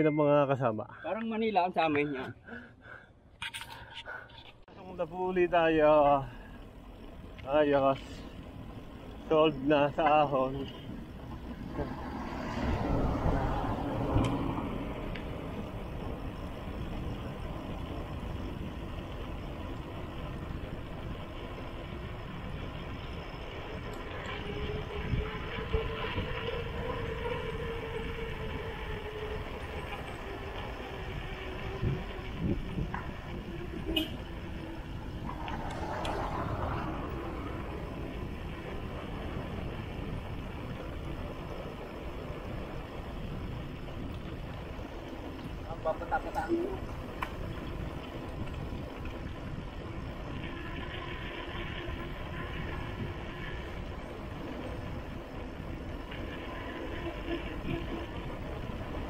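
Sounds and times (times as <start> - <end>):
bike tyre rumble: 1.4 - 59.0
wind rush over microphone: 22.6 - 29.6, 30.8 - 41.3.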